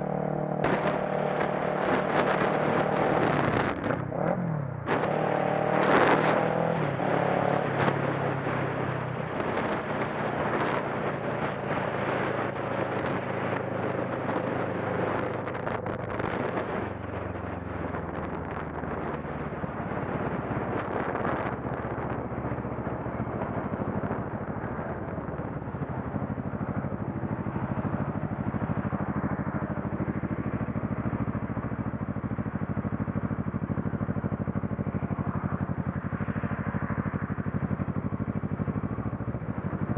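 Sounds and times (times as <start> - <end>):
motorcycle engine running: 0.0 - 39.9
wind rush on microphone: 0.6 - 31.7.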